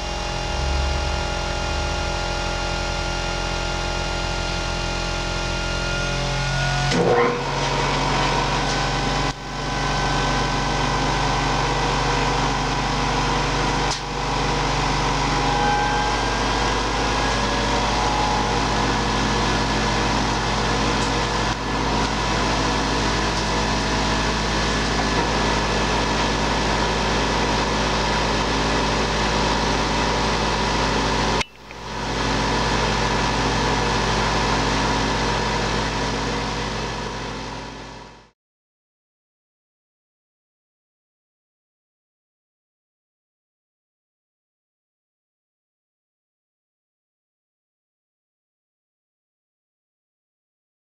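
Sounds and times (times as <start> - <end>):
machine-shop noise: 0.0 - 36.7
bench grinder running: 0.0 - 38.1.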